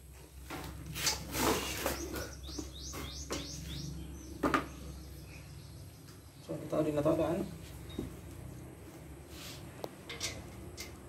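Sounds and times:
bird chirping: 1.5s - 8.0s.

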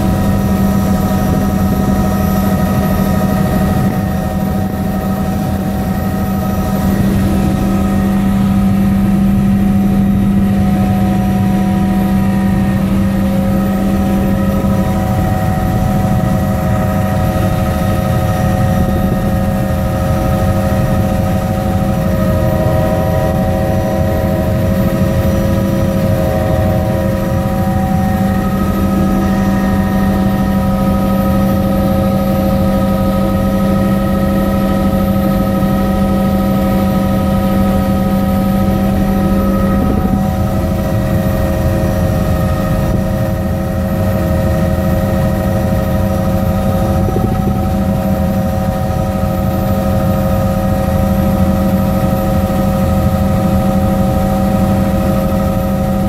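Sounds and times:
helicopter engine and rotor drone: 0.0s - 56.0s
steady whining tones: 0.0s - 56.0s.

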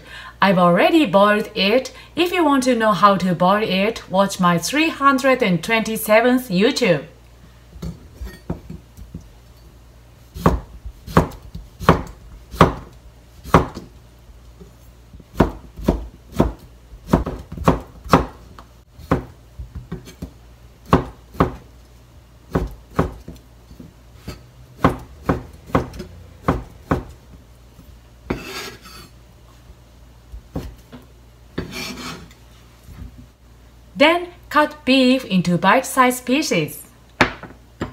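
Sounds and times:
knife scraping: 28.3s - 29.2s, 31.6s - 32.4s.

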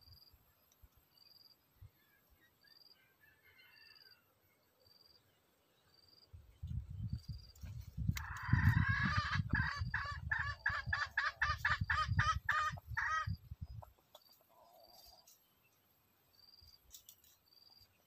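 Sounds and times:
junglefowl harsh call: 8.2s - 13.3s
junglefowl clucking cackles: 8.2s - 15.2s.

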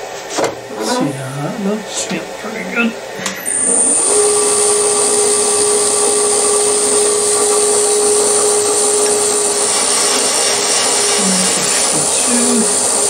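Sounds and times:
milling machine spindle running: 0.0s - 13.0s
steady drilling tone: 0.7s - 13.0s.

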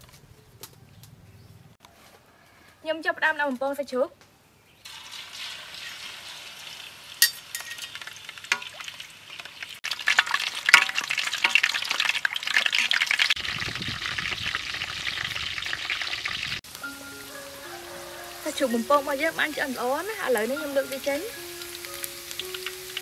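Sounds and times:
pork sizzling in hot oil: 4.8s - 23.0s
wood fire crackling: 4.9s - 23.0s
oil popping and spitting: 7.8s - 16.6s.

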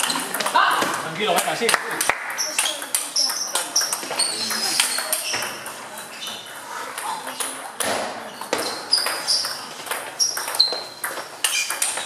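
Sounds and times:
table tennis ball pinging off table: 7.4s - 12.0s
table tennis ball clicking off bats: 9.0s - 12.0s.

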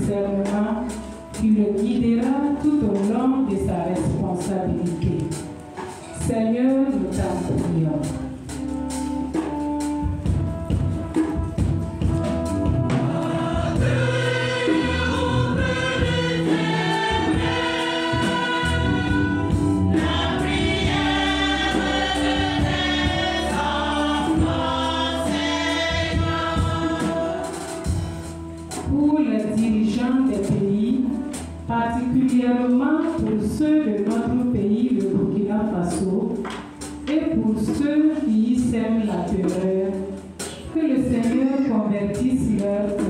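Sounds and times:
choir singing: 12.8s - 28.4s.

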